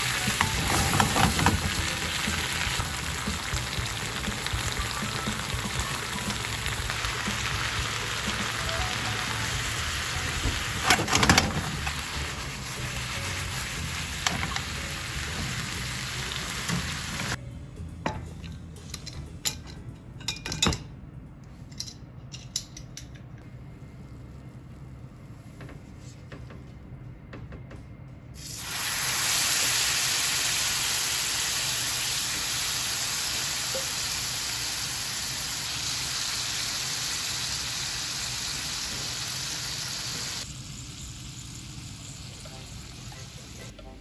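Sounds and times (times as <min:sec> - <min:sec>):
food sizzling in a frying pan: 0:00.0 - 0:17.4, 0:28.4 - 0:43.7.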